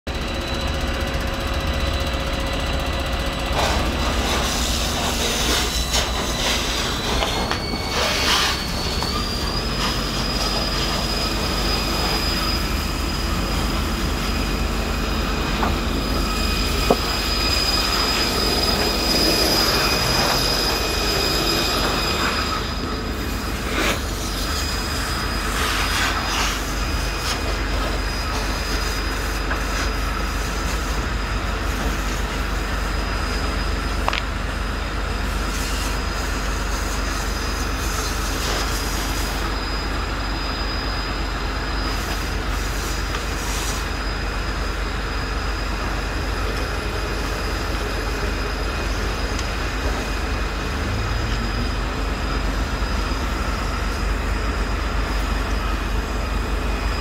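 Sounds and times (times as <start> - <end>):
high steady whine: 0.1 - 57.0
loud steady rushing noise: 42.7 - 57.0.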